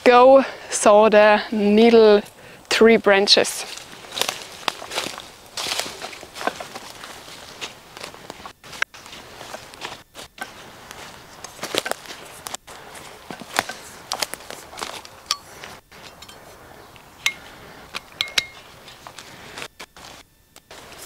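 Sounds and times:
footsteps through forest litter: 3.2 - 21.0
branches rustling and snapping: 3.6 - 21.0
twigs snapping underfoot: 3.7 - 16.2.

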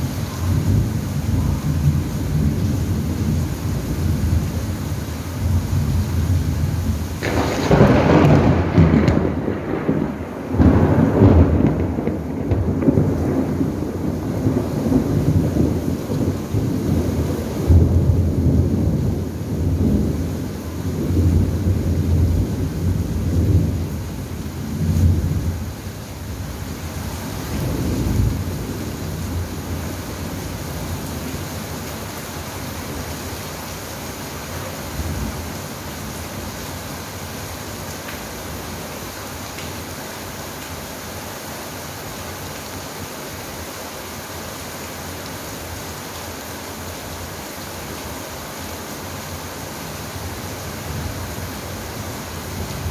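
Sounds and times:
steady rain: 0.0 - 52.9
thunder rolling: 5.5 - 20.3, 27.4 - 30.9.

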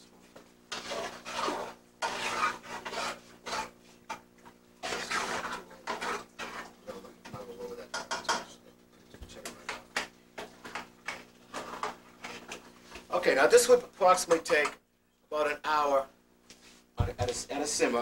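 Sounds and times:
utensil stirring sauce in metal pot: 0.7 - 8.6, 9.4 - 13.1.

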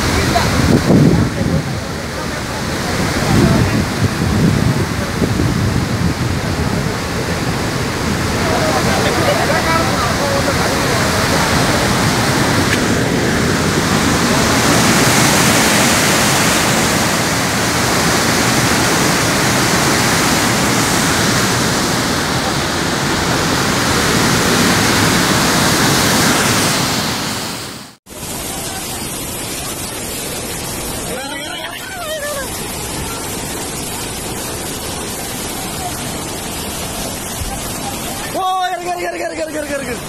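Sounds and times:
flooded river rushing: 0.0 - 40.0
floodwater rushing from spillway: 0.0 - 40.0.

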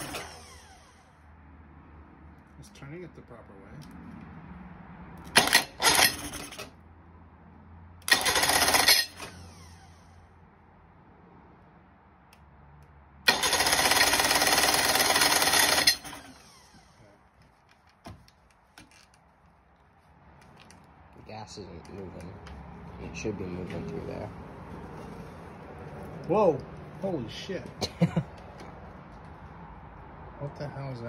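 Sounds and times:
electric starter cranking engine: 0.0 - 1.1, 5.3 - 6.7, 8.0 - 10.1, 13.3 - 17.0.

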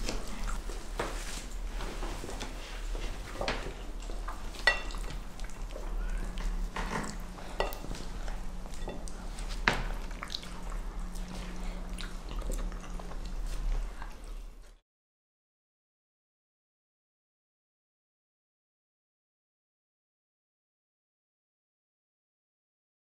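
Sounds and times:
chewing: 0.0 - 0.8, 2.3 - 14.8
steady low hum: 0.0 - 14.8
cutlery clinking on plates: 4.6 - 5.2, 6.8 - 8.0, 8.7 - 9.1.

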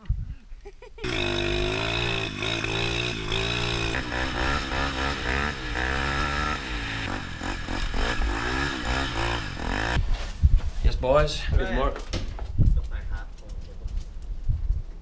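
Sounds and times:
pit bike engine revving: 1.0 - 10.0
quad engine revving: 1.0 - 10.0.

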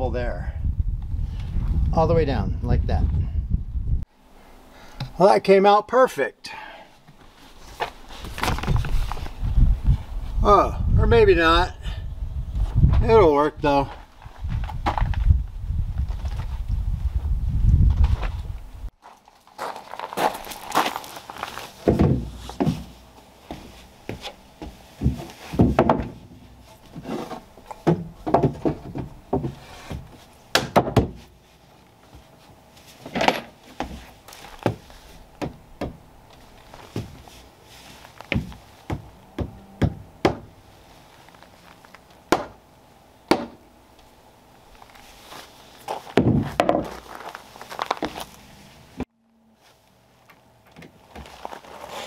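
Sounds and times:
footsteps on wooden deck: 19.0 - 31.3, 33.7 - 40.5, 50.7 - 51.9
hammer knocking wood: 25.0 - 26.2, 27.8 - 29.5, 30.6 - 31.2, 38.3 - 40.5, 42.3 - 42.6.

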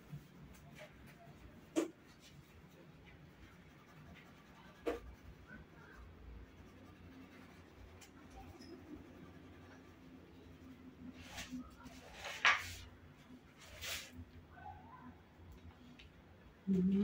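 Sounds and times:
drawing tool scratching paper: 3.3 - 10.2.

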